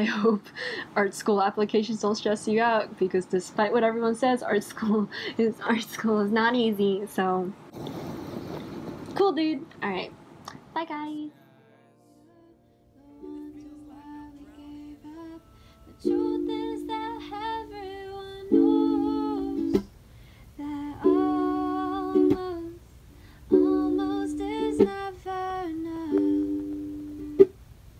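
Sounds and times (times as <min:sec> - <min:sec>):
woman singing: 0:12.2 - 0:19.9, 0:20.5 - 0:22.9, 0:23.5 - 0:26.9
ukulele strumming: 0:15.9 - 0:19.9, 0:20.9 - 0:22.8, 0:23.5 - 0:25.1, 0:26.0 - 0:27.6.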